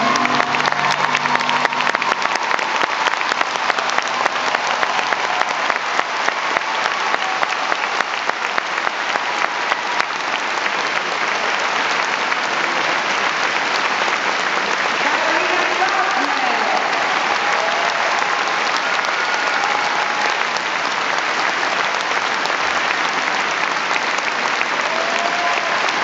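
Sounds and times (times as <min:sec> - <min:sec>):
music: 0:00.0 - 0:02.4
audience applauding: 0:00.0 - 0:26.0.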